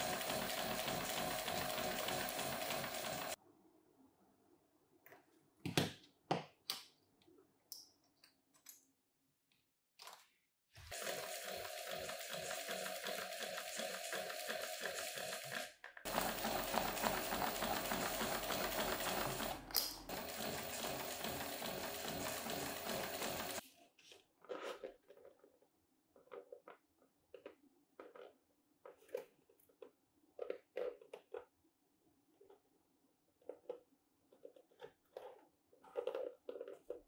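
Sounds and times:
sewing machine stitching leather: 0.0s - 3.4s, 10.8s - 23.6s.

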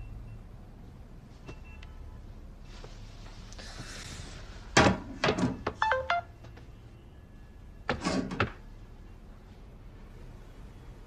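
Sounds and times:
electronic chime: 5.8s - 6.3s.

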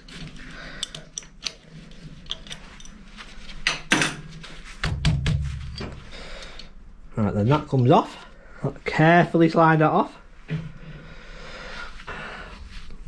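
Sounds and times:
spanner clicking and clinking on metal: 0.1s - 4.2s.

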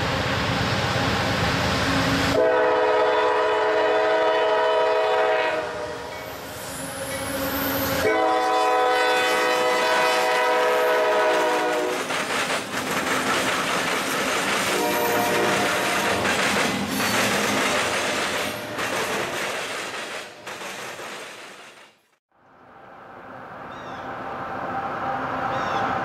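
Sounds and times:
locomotive air horn blasts: 1.9s - 6.1s, 8.0s - 12.0s, 14.7s - 16.1s
locomotives rumbling past: 6.6s - 21.8s.

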